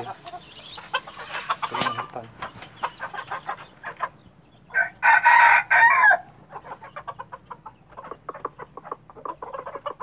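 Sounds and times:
rapid clucks: 0.0 - 4.2, 6.4 - 10.0
rooster crowing: 4.7 - 6.4.

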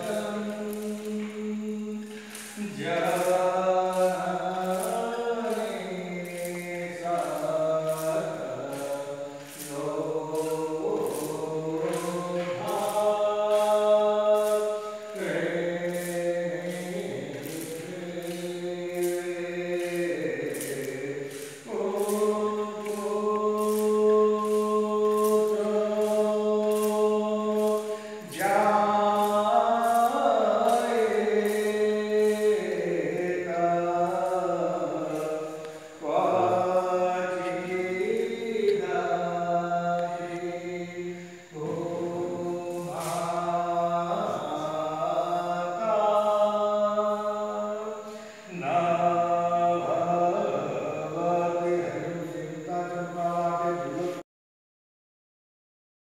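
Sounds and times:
voices chanting a hymn: 0.0 - 54.2.

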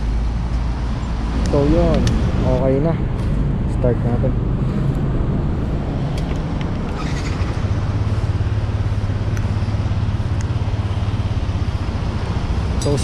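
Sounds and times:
scooter engine starting and idling: 6.9 - 7.9.

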